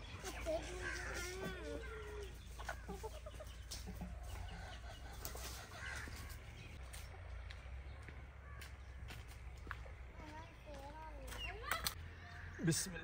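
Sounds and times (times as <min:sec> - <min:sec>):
chickens clucking: 0:00.0 - 0:08.0.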